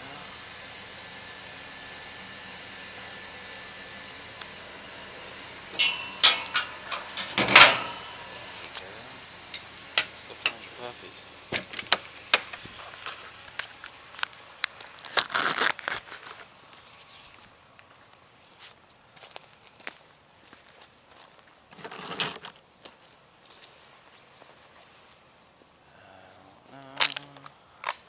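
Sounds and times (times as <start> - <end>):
metal kennel door clanking: 5.8 - 8.1
footsteps: 11.6 - 25.7.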